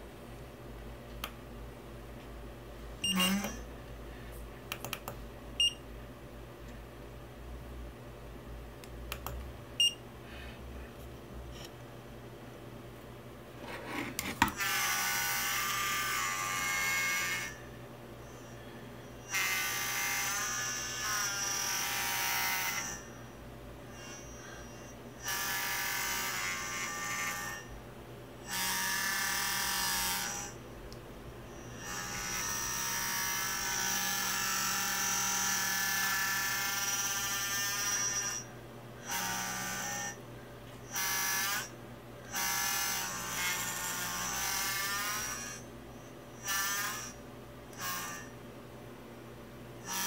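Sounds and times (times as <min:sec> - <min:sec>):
faint steady hum: 0:00.0 - 0:14.6, 0:15.4 - 0:25.3
gimbal motors buzzing: 0:03.0 - 0:03.7, 0:23.9 - 0:27.7, 0:31.5 - 0:38.5.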